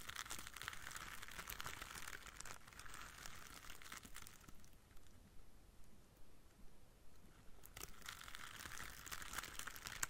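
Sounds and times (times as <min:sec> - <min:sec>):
plastic leaves crackling: 0:00.0 - 0:05.1, 0:07.6 - 0:10.0.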